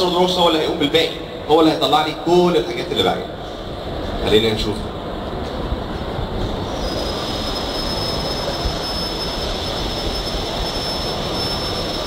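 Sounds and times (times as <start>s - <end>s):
hiss and rumble of room noise: 0.0s - 12.0s
high-pitched whine: 4.8s - 12.0s.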